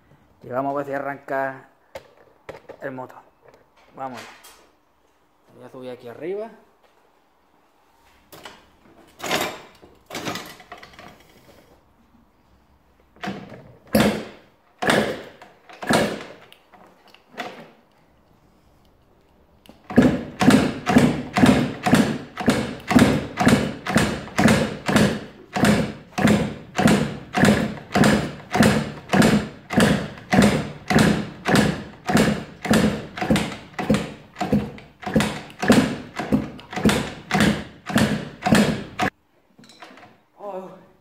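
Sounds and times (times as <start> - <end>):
engine kick-starting: 19.9 - 39.1.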